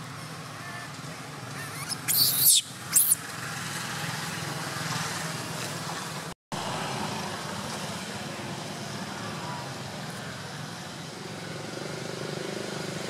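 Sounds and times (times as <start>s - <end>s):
distant traffic hum: 0.0s - 13.0s
baby monkey squealing: 1.5s - 3.3s.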